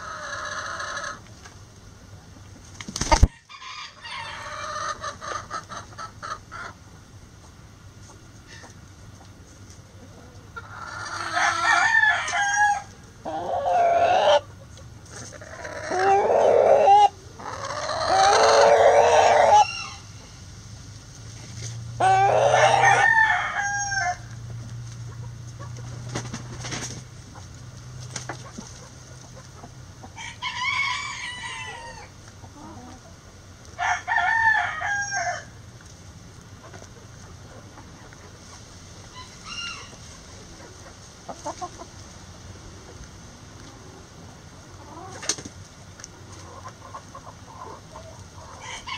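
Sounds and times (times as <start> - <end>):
roosters crowing: 0.0 - 1.2, 3.0 - 6.7, 10.5 - 14.6, 15.3 - 20.5, 21.9 - 24.5, 28.8 - 33.1, 33.7 - 35.7, 39.0 - 40.8, 46.9 - 48.9.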